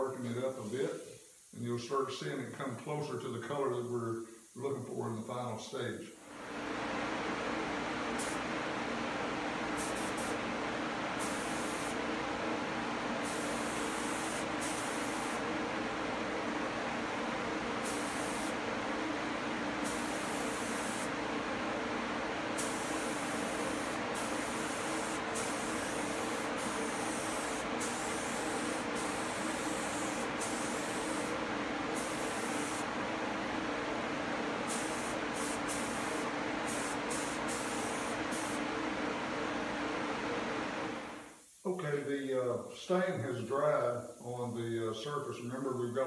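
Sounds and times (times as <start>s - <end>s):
spray booth fan humming: 0.0s - 46.0s
spray gun hissing: 8.1s - 8.5s, 9.6s - 10.5s, 11.1s - 12.1s, 13.1s - 15.6s, 17.7s - 18.7s, 19.6s - 21.2s, 22.5s - 33.6s, 34.6s - 38.7s.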